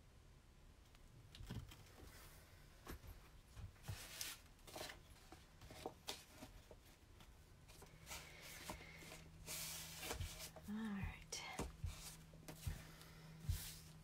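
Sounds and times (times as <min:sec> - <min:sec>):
book rustling and scraping on cloth: 0:03.7 - 0:10.8, 0:11.6 - 0:14.0.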